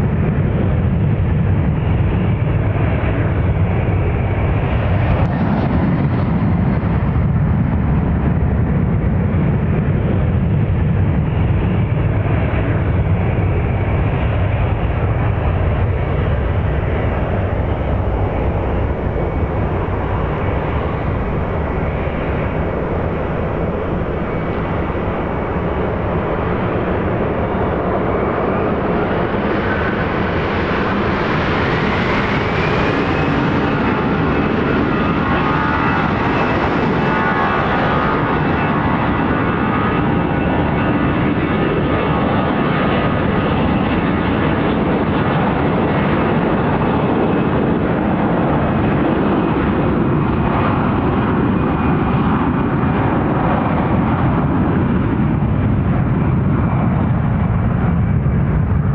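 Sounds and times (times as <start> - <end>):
jet engines rumbling: 0.0 - 58.9
rising engine whine: 0.2 - 44.1.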